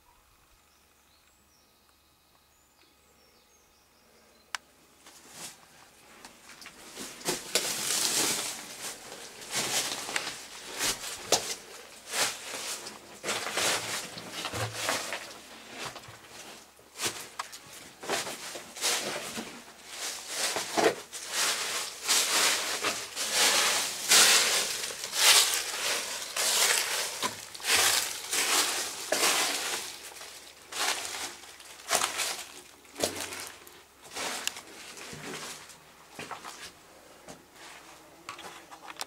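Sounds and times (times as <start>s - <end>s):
footsteps crunching dry leaves: 6.7s - 15.4s, 16.4s - 36.7s.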